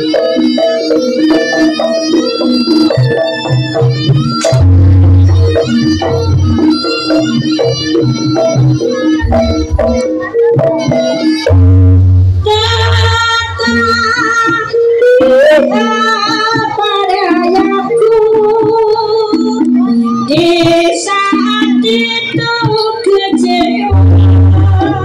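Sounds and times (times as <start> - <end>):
percussion: 0.0 - 25.0
wavering high melody: 0.0 - 25.0.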